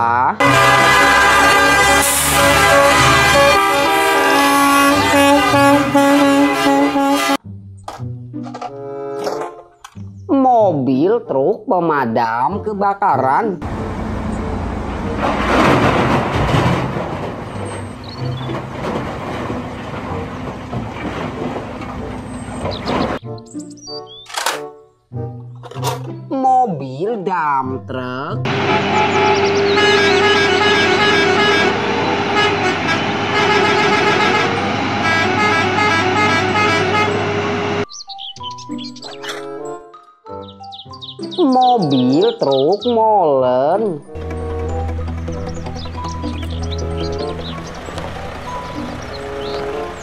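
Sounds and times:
diesel engine under load: 0.4s - 6.9s, 13.6s - 23.2s, 28.4s - 37.9s, 44.0s - 50.0s
steady horn tone: 0.4s - 7.5s, 28.5s - 37.8s.

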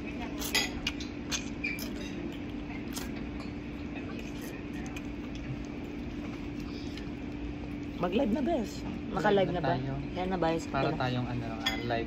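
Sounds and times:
steady mechanical hum: 0.0s - 12.0s.

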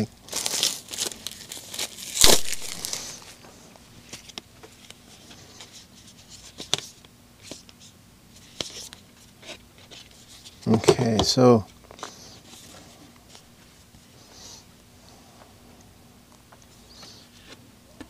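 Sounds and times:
cardboard rustling and crinkling: 0.3s - 3.4s.

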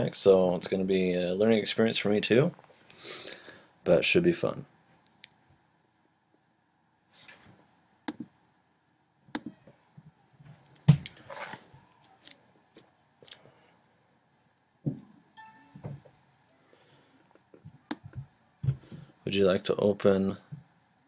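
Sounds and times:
computer mouse clicking: 9.3s - 9.5s
short pitched beep: 15.4s - 15.9s.

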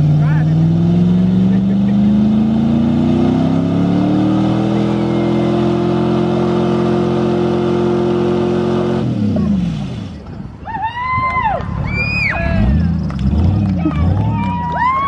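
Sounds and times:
truck engine at high revs: 0.0s - 10.5s, 12.4s - 15.0s.

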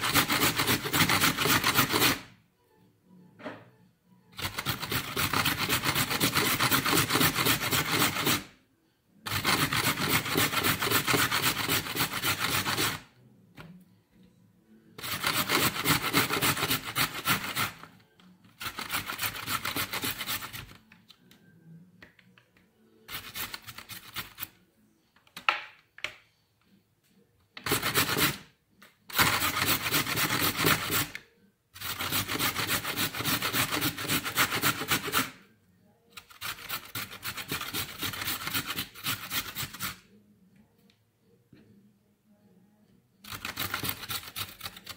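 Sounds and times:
carrot grating on metal grater: 0.0s - 2.3s, 4.4s - 8.5s, 9.3s - 13.0s, 15.0s - 17.9s, 18.6s - 20.8s, 27.6s - 28.5s, 29.1s - 31.1s, 31.8s - 35.4s, 36.2s - 40.0s, 43.3s - 44.9s.

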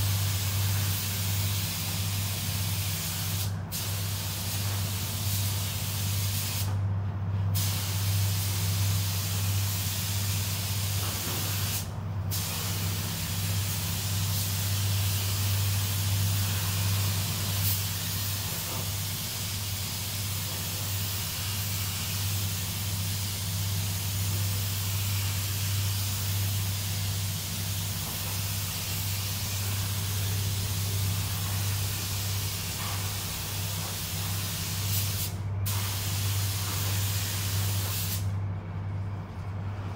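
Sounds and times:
steady low hum: 0.0s - 39.9s
paint spray gun hissing: 7.6s - 38.2s.

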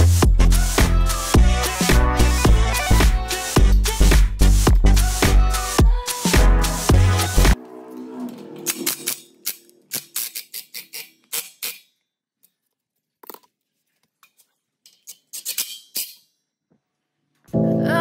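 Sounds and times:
background music: 0.0s - 9.9s, 17.5s - 18.0s.

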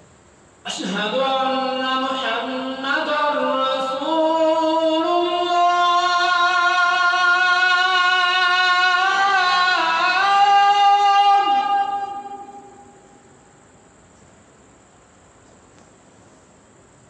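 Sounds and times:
man chanting a call to prayer: 0.7s - 13.1s.

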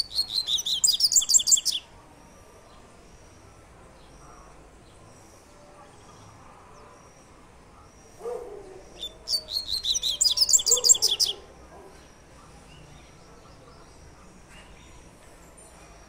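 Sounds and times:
bird singing high repeated notes: 0.0s - 1.9s, 8.8s - 11.4s.

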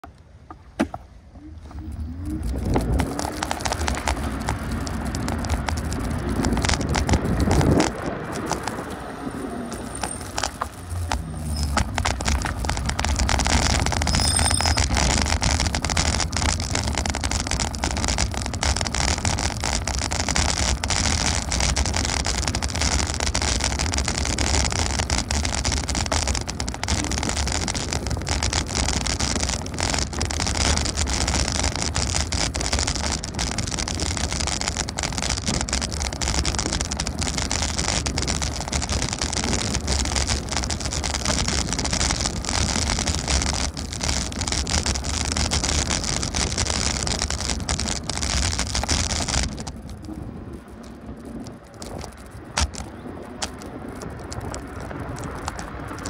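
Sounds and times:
vehicle low rumble: 0.0s - 56.0s
wind noise: 0.0s - 56.0s
brief high ring: 14.1s - 14.8s.

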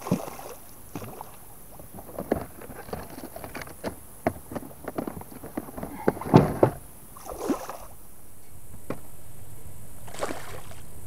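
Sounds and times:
fish splashing in water: 0.0s - 1.4s, 7.2s - 8.0s, 10.0s - 10.8s.

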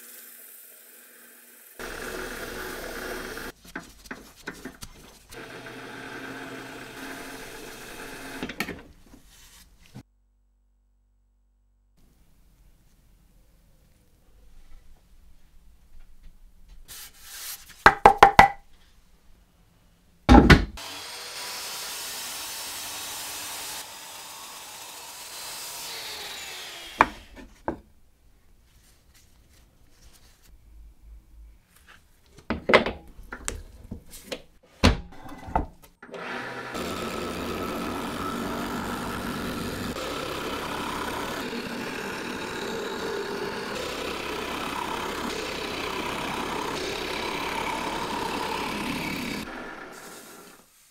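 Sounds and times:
power saw cutting wood: 0.0s - 3.6s, 5.3s - 8.7s, 20.8s - 27.4s, 36.0s - 50.7s
lathe chisel scraping wood: 1.8s - 8.6s, 36.2s - 50.7s.

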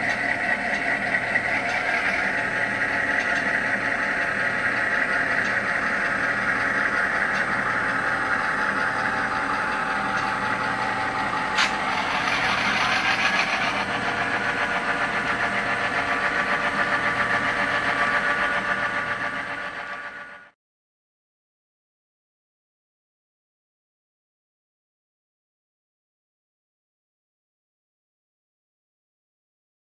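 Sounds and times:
diesel locomotive engine from speaker: 0.0s - 20.6s
sharp click: 11.6s - 11.8s.

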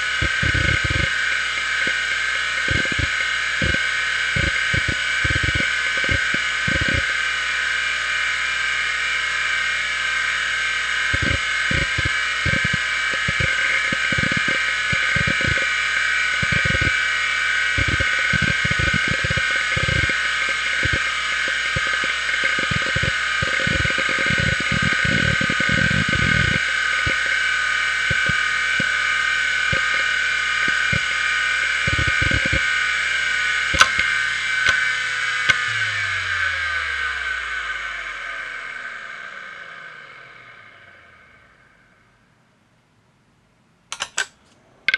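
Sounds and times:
hard drive seeking clicks: 0.0s - 7.6s, 10.8s - 37.2s
hard drive whine: 0.0s - 44.9s.

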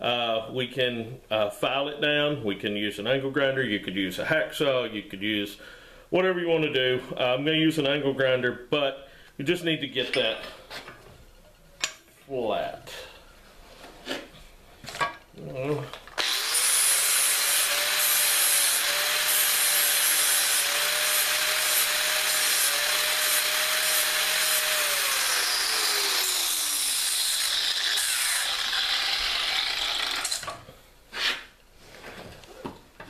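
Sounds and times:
angle grinder grinding metal: 16.2s - 30.6s.

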